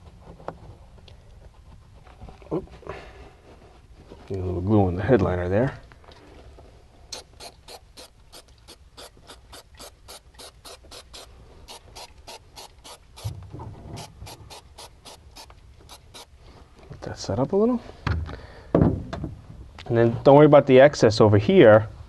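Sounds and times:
aerosol can spraying in short bursts: 7.2s - 13.3s, 14.0s - 16.3s.

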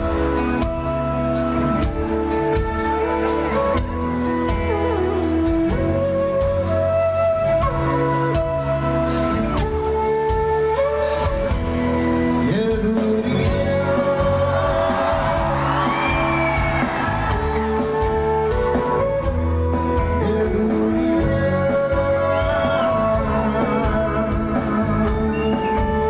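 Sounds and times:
live band music: 0.0s - 26.0s
person singing: 12.3s - 16.6s, 19.7s - 26.0s.

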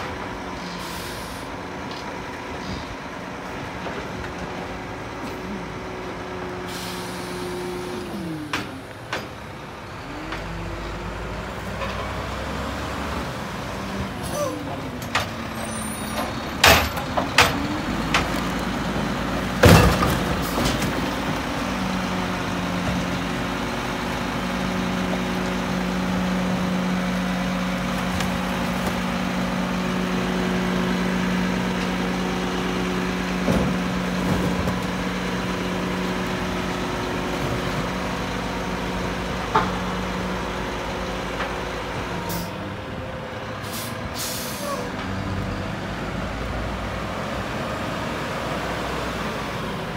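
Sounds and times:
garbage truck engine running: 0.0s - 49.9s
sharp bangs of bucket loading: 19.6s - 21.0s.

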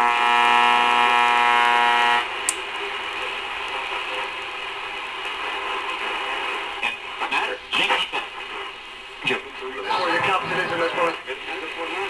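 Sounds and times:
buzzy radio tone: 0.0s - 12.0s
radio static hiss: 0.0s - 12.0s.

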